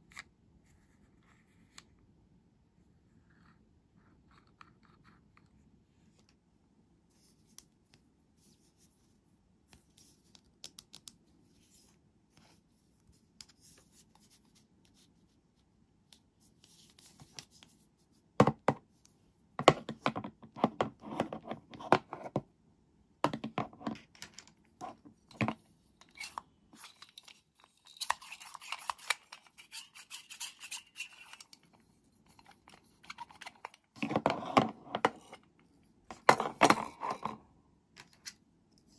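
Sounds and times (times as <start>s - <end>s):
scratchy rubbing: 26.1s - 35.4s.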